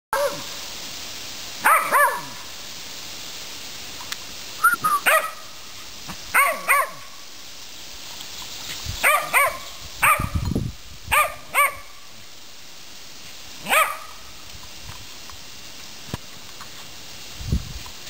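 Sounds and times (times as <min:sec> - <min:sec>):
small dog barking: 0:00.1 - 0:00.5, 0:01.6 - 0:02.4, 0:05.0 - 0:05.5, 0:06.3 - 0:07.1, 0:09.0 - 0:10.4, 0:11.1 - 0:12.0, 0:13.6 - 0:14.2.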